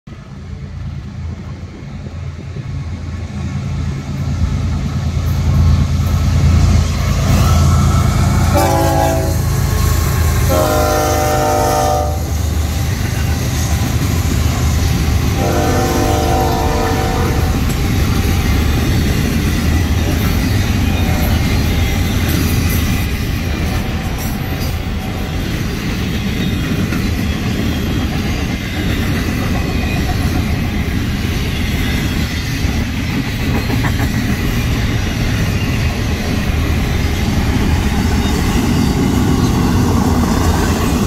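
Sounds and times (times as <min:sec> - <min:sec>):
diesel locomotive rumble: 0:00.1 - 0:41.0
rail clatter of passing cars: 0:00.1 - 0:41.0
train horn blasts: 0:07.4 - 0:12.4, 0:15.4 - 0:17.7, 0:20.9 - 0:21.7.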